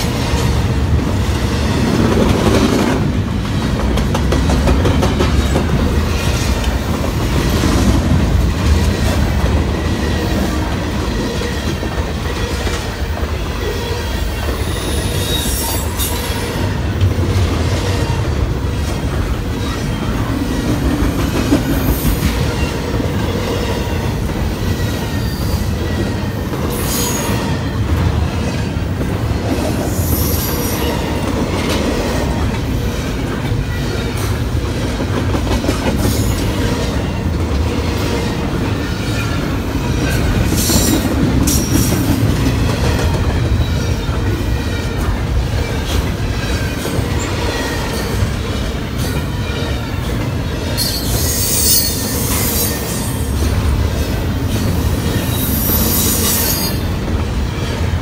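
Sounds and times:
train wheels rumbling on rails: 0.0s - 58.0s
high wheel squeals: 13.7s - 16.6s, 50.7s - 53.3s.

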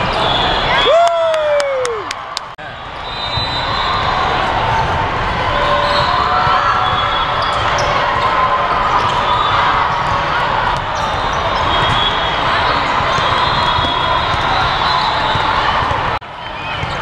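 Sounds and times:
shoe squeaks: 11.0s - 15.8s, 16.5s - 17.0s.

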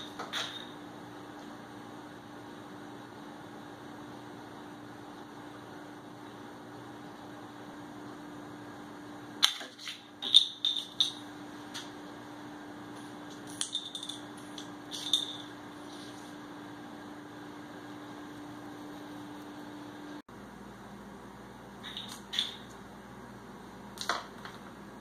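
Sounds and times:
steady electrical hum: 0.0s - 25.0s
bottle cap clattering on tile floor: 9.4s - 11.2s, 13.4s - 15.5s.

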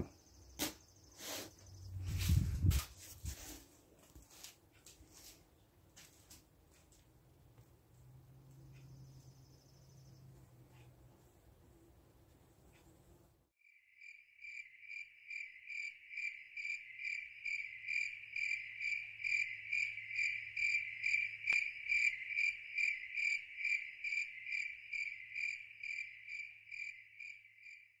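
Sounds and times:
cricket chirping: 0.0s - 2.1s, 8.6s - 10.3s, 13.6s - 28.0s.

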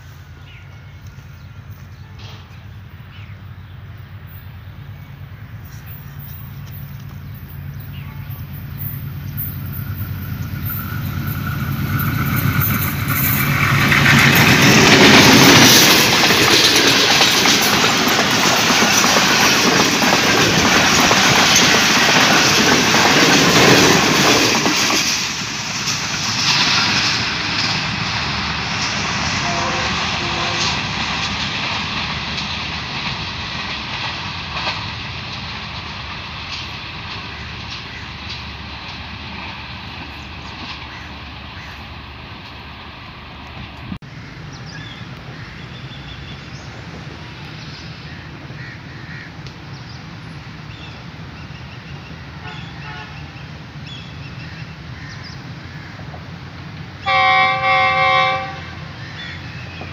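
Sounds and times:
diesel locomotive passing: 0.0s - 59.9s
wheels clattering over rails: 6.1s - 42.2s.

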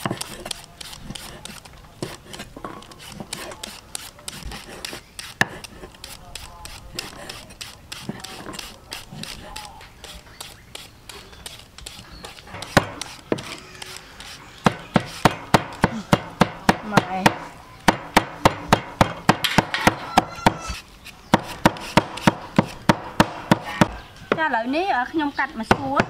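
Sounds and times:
cleaver chopping on wooden block: 0.0s - 9.7s, 12.6s - 13.6s, 14.2s - 20.6s, 21.3s - 24.4s.

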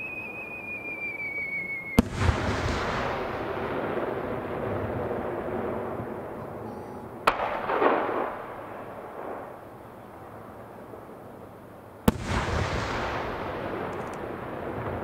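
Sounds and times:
firework bangs: 0.0s - 10.7s, 12.0s - 15.0s
echoing rumble: 0.0s - 11.4s.

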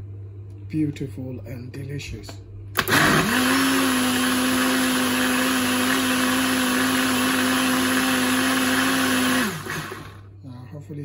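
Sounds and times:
blender motor running: 2.8s - 10.3s.

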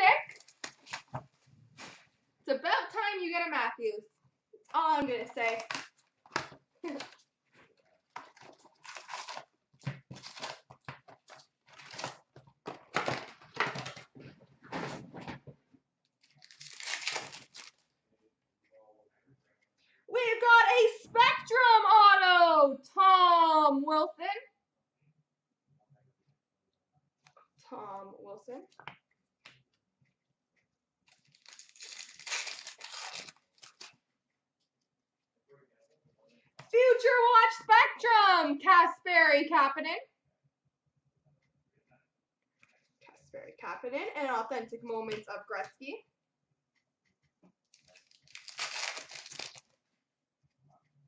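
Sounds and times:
card pack wrappers crinkling: 8.2s - 9.5s, 10.1s - 12.2s, 16.2s - 17.8s, 31.1s - 34.0s, 47.8s - 49.7s.

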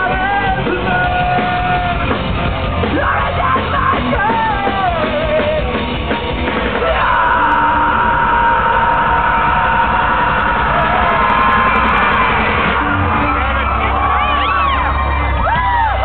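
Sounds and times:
live rock band playing: 0.0s - 16.0s
yells: 6.7s - 16.0s.

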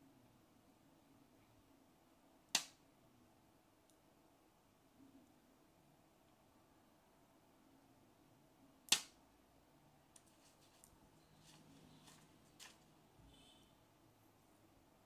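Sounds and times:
packaging snapping: 10.2s - 12.9s
plastic bag crinkling: 10.2s - 12.9s.

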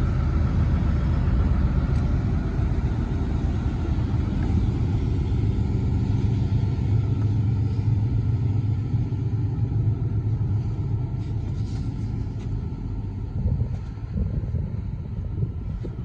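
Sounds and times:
excavator diesel engine idling: 0.0s - 16.0s.

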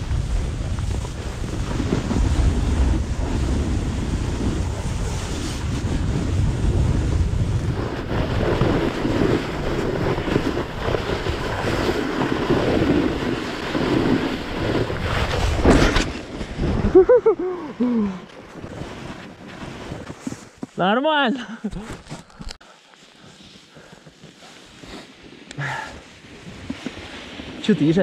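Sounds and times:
wind rushing over microphone: 0.0s - 20.2s
snowboard sliding on snow: 0.0s - 21.3s, 22.6s - 28.0s.

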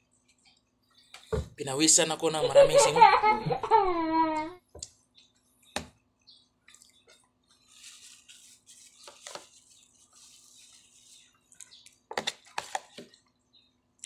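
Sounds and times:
soft chewing and mouth noises: 6.6s - 7.9s, 9.6s - 12.1s.

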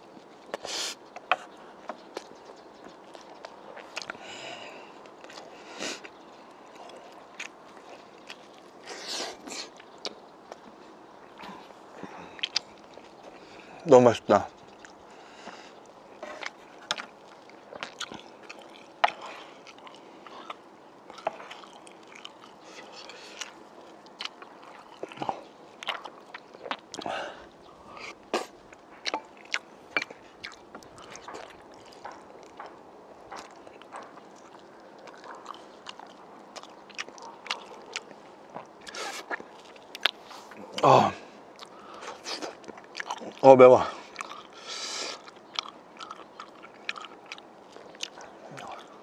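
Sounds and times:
chewing and biting food: 0.0s - 13.8s, 14.5s - 49.0s
wet mouth clicks and smacks: 0.5s - 4.2s, 28.0s - 40.2s, 45.2s - 49.0s.

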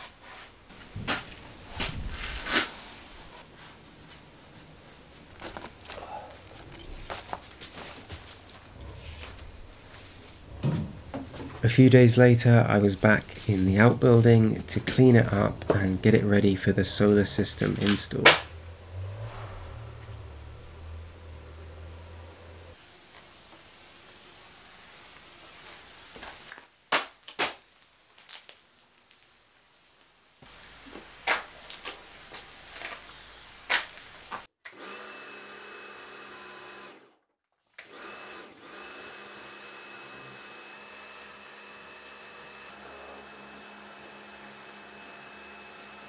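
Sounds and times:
pressure washer whining: 5.8s - 22.8s, 37.9s - 46.0s.

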